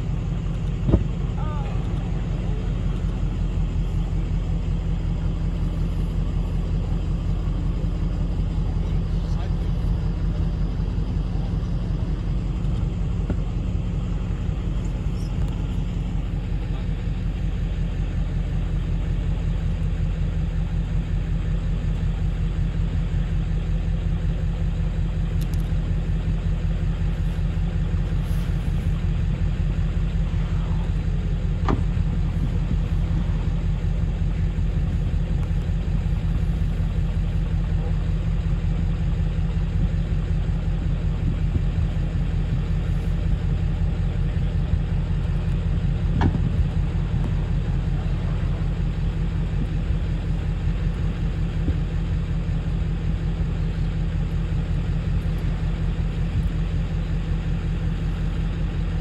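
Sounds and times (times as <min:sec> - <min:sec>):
boat engine droning: 0:00.0 - 0:59.0.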